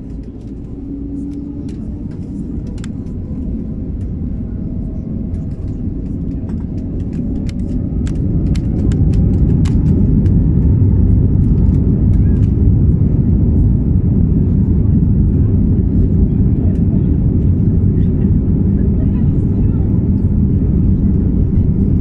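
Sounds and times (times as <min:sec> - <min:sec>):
jet engines rumbling: 0:00.0 - 0:22.0.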